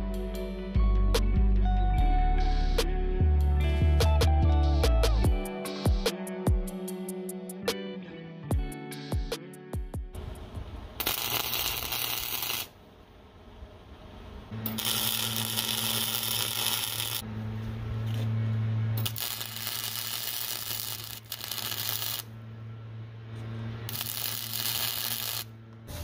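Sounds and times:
low steady welder hum: 10.2 - 26.0
welding arc noise: 11.0 - 12.8, 14.6 - 17.2, 18.9 - 22.4, 23.8 - 26.0.

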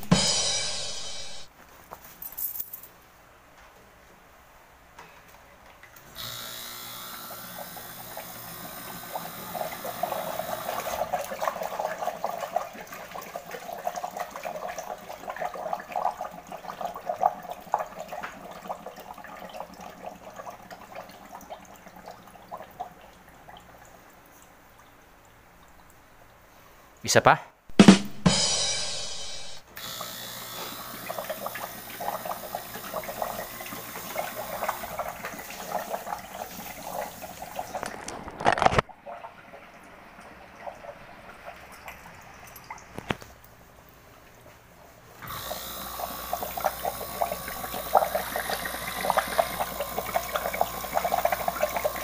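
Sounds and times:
gas hissing from hose: 45.2 - 52.0
water bubbling and churning: 46.4 - 52.0.

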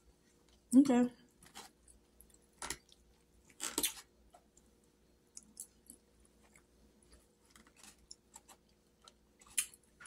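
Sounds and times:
chewing: 5.3 - 10.0.

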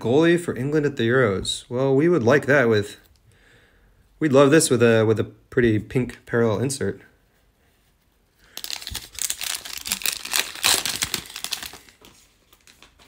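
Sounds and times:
foil wrapper torn and crinkled: 8.5 - 13.0.

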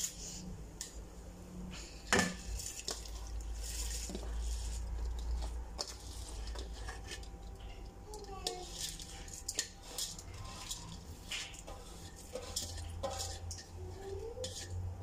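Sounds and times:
metal dish clinking on pot: 12.3 - 13.7.

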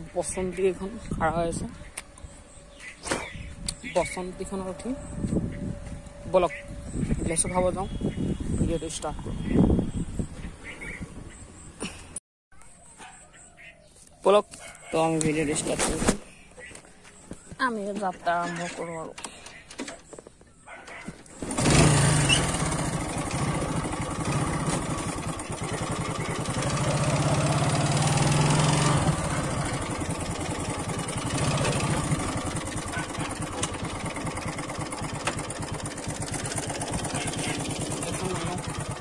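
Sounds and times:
motorcycle engine: 20.9 - 39.0.

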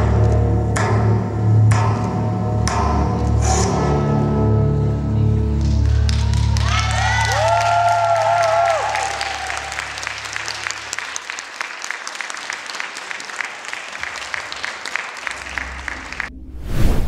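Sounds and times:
audience applauding: 5.5 - 16.3
electronic whoosh and deep hit: 16.2 - 17.0.

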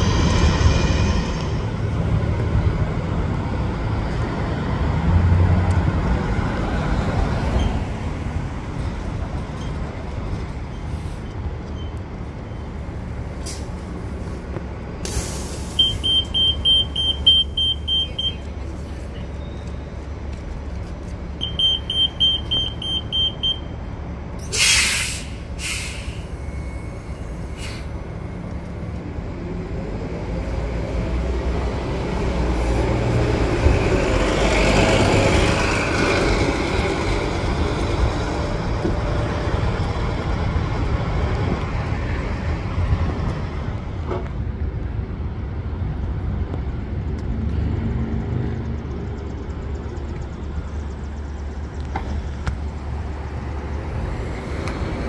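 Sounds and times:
traffic rumbling: 0.0 - 55.0
bus idling: 5.6 - 47.1, 48.7 - 55.0
air brake hisses: 15.0 - 16.2, 24.4 - 26.5, 27.4 - 28.0.

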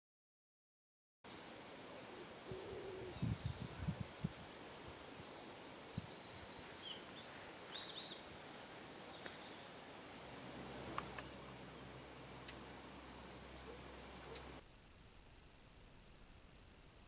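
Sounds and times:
small birds chirping: 1.3 - 14.6.

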